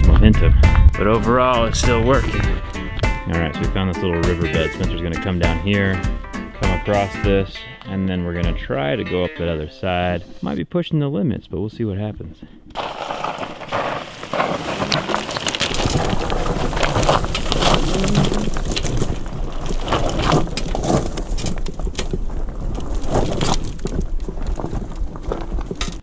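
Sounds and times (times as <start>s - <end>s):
low rumble: 0.0s - 4.0s
tyres rolling over gravel: 12.8s - 26.0s.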